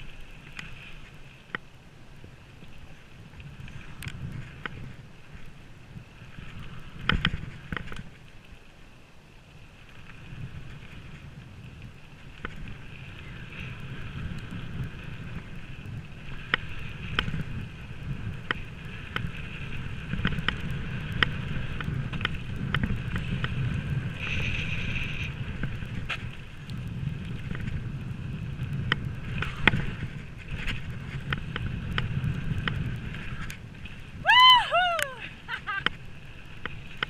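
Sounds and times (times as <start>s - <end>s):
bike tyres rumbling on dirt: 2.2s - 8.4s, 9.5s - 37.0s
bike clicking and rattling: 7.0s - 8.2s, 12.3s - 34.0s.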